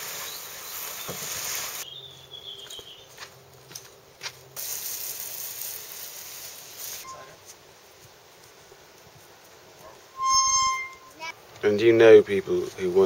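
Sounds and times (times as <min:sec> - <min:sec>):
garden hose spraying water: 0:00.0 - 0:02.0, 0:03.3 - 0:10.1.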